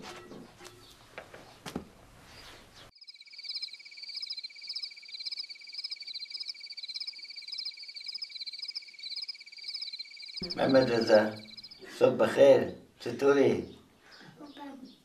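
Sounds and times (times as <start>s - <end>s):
rhythmic insect chirping: 2.9s - 12.0s
insects trilling: 2.9s - 12.1s.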